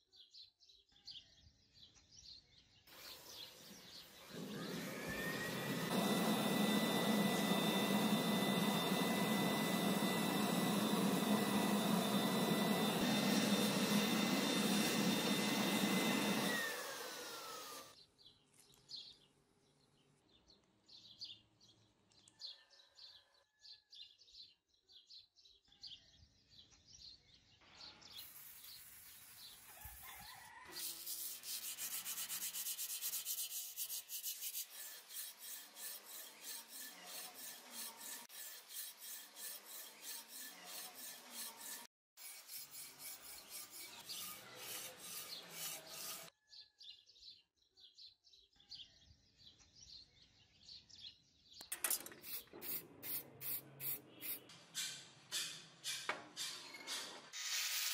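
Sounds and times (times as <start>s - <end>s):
rubbing strokes on blade: 3.0s - 17.9s, 28.1s - 46.4s
forge burner roaring: 4.3s - 17.9s.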